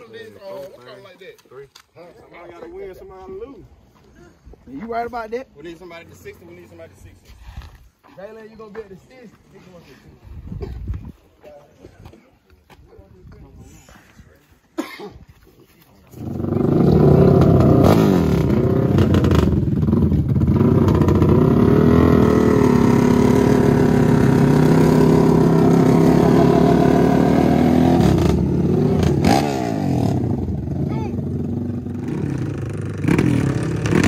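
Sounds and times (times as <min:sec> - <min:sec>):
atv engines at full throttle: 0:16.1 - 0:34.0.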